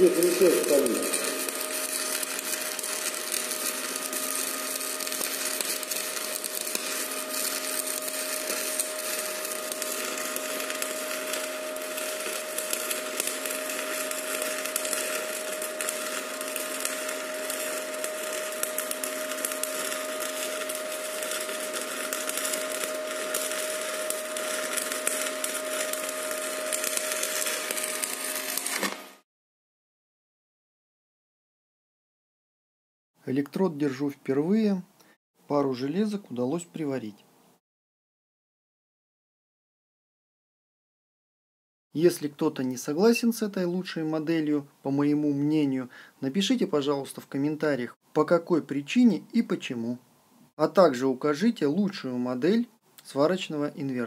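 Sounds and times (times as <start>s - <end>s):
thin whine: 0.0s - 29.2s
welding arc crackling: 0.0s - 29.3s.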